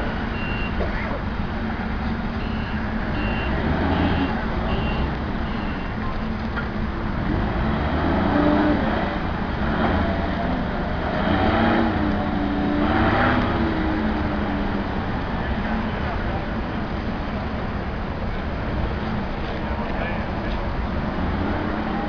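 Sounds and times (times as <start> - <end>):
forklift engine running: 0.0 - 22.0
reverse alarm short high beeps: 2.4 - 6.0.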